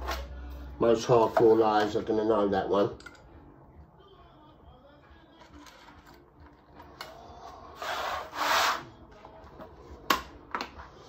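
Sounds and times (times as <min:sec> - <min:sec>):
utility knife scraping: 0:07.8 - 0:08.9.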